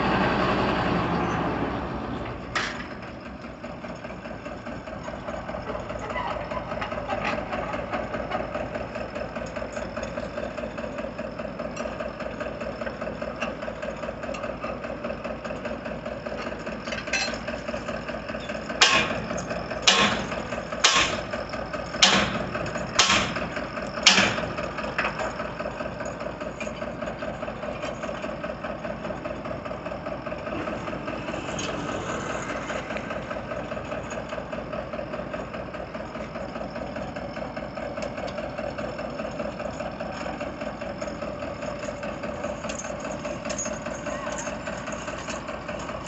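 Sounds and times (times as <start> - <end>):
diesel engine idling: 0.0 - 46.0.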